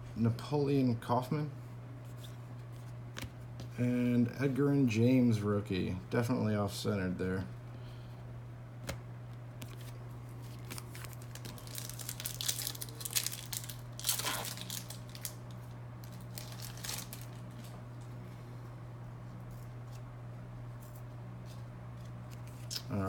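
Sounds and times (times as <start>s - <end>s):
steady low hum: 0.0s - 23.0s
foil wrapper tearing and crinkling: 10.5s - 17.8s.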